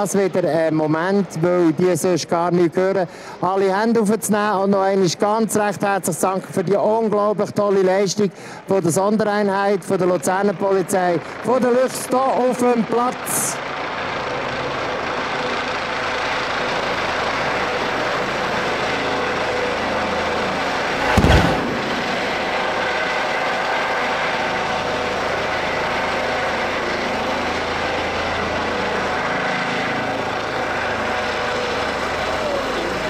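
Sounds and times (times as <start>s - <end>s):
helicopter hovering: 0.0s - 33.0s
loud explosive bang: 21.0s - 22.8s.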